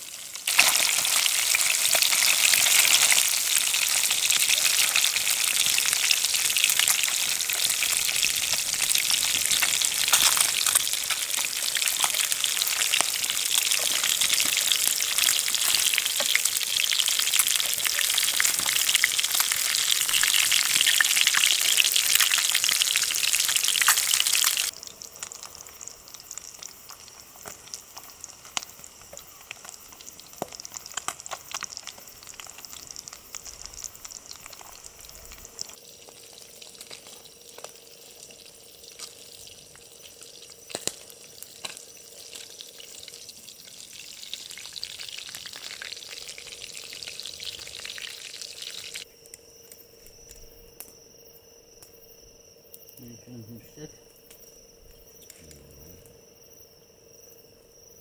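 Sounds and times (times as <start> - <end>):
food sizzling in a pan: 0.0 - 49.1
small clicks and ticks: 6.8 - 14.6, 23.8 - 43.8.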